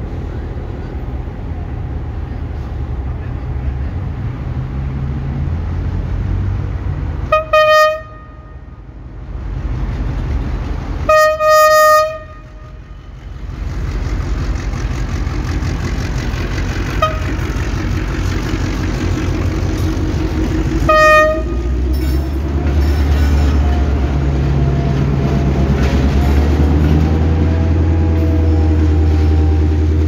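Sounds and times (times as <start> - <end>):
train rumbling on rails: 0.0 - 30.0
locomotive horn: 7.2 - 8.8, 11.0 - 13.2, 16.8 - 17.8, 20.5 - 25.1.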